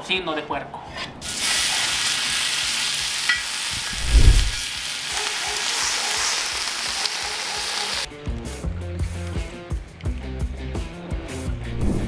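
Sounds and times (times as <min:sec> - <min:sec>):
bacon sizzling on a griddle: 0:01.2 - 0:08.1.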